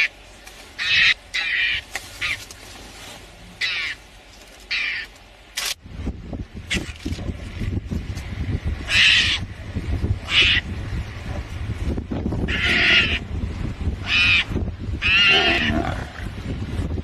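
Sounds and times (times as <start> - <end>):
mongoose screeching: 0.8 - 2.4, 8.9 - 9.5, 10.2 - 10.7, 12.5 - 13.2, 14.0 - 16.0.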